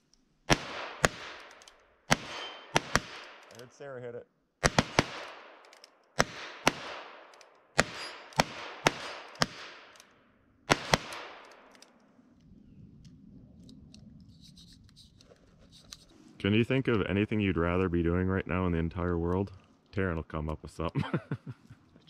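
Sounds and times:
revolver gunshots: 0.5s - 3.7s, 4.6s - 10.0s, 10.7s - 11.7s.

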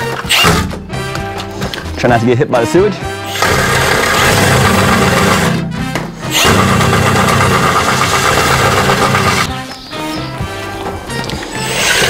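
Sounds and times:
cordless drill spinning: 3.3s - 5.6s, 6.3s - 9.5s.

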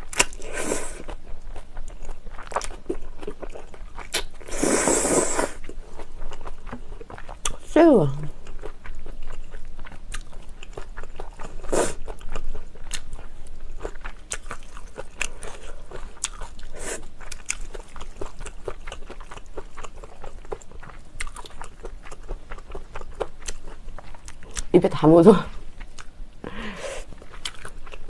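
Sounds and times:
wet chewing and smacking: 1.0s - 4.5s, 5.6s - 7.7s, 8.3s - 24.7s, 25.6s - 26.2s, 27.1s - 28.0s
slurping noodles: 4.5s - 5.6s.

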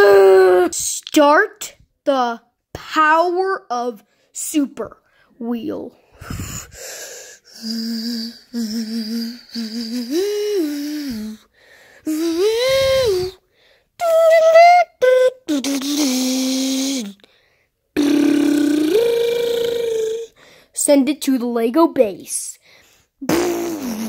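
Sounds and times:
child humming motor sounds: 7.4s - 11.5s, 12.1s - 13.4s, 15.0s - 17.2s, 18.0s - 20.4s.

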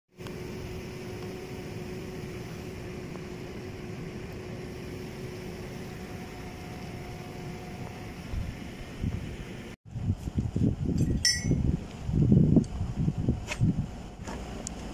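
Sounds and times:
mechanical hum: 0.2s - 14.9s.

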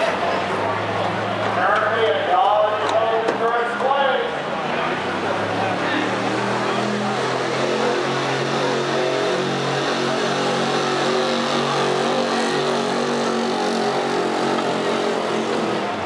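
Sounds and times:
pickup engine running at high revs: 4.5s - 16.0s.

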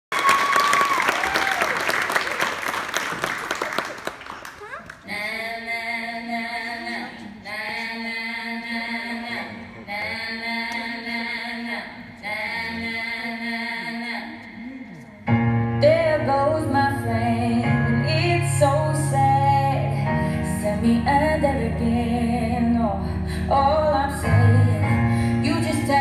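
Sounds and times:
audience applause: 0.1s - 5.1s
slow vocal music: 5.0s - 26.0s.

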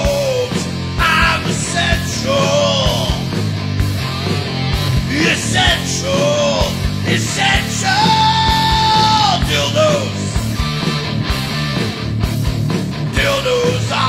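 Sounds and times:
man yelling vocals: 0.0s - 3.2s, 5.1s - 10.3s, 13.2s - 14.0s
drums: 0.0s - 14.0s
electric guitar: 0.0s - 14.0s.

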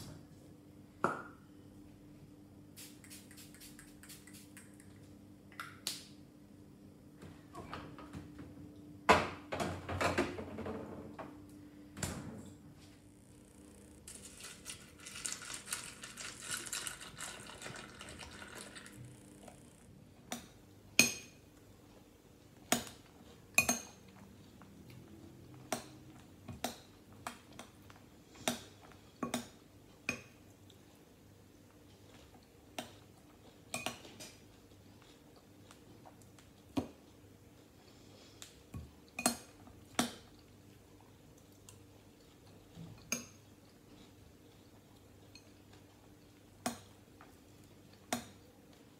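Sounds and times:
milk pouring onto cereal: 14.0s - 19.7s.

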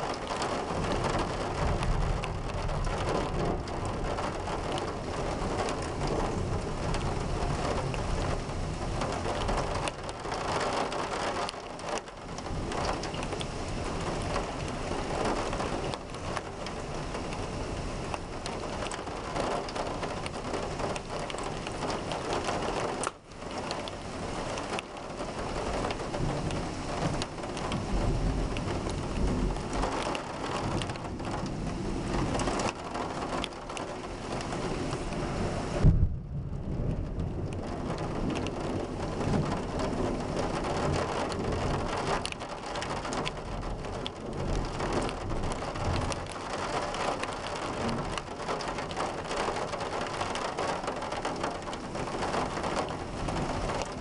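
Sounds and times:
thunder rumbling: 0.0s - 11.5s, 24.6s - 54.0s
heavy rain pouring: 0.0s - 54.0s.

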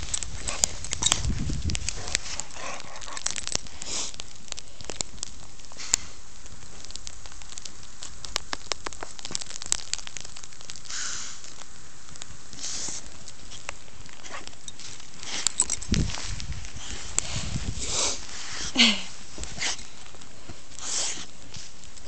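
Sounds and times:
dog snorting: 1.9s - 3.4s
deep snow crunching: 12.5s - 22.0s.

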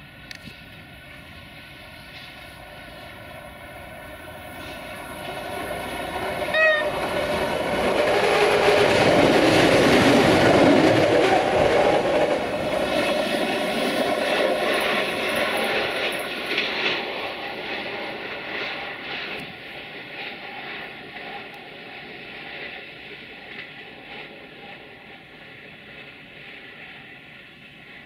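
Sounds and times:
diesel train passing: 0.0s - 28.0s
brief high tone: 6.6s - 6.9s.

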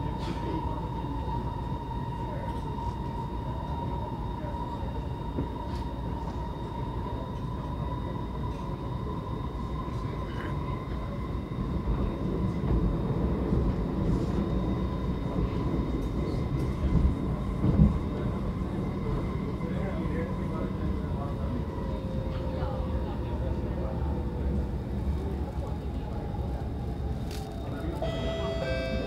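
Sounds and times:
train wheels rumbling on track: 7.2s - 29.0s
steady high whine: 27.3s - 29.0s.

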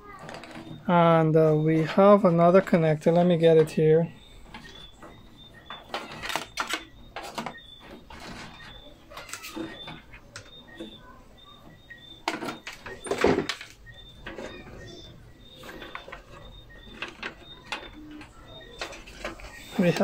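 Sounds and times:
faint high chirps: 0.0s - 20.0s
plastic clatter: 0.1s - 0.8s, 4.4s - 11.0s, 11.7s - 20.0s.

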